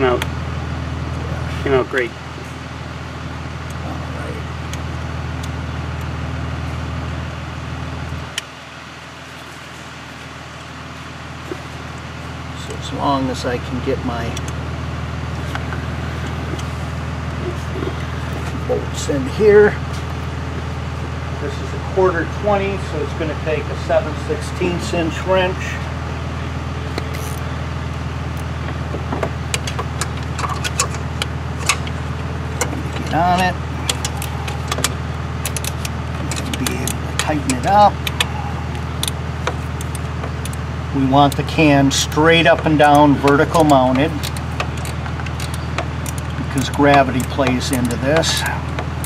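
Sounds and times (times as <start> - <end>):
faint hum: 0.0 - 49.0
low motor drone: 0.0 - 49.0
metallic clicks of wrench and bolt: 33.9 - 38.3, 42.8 - 48.6.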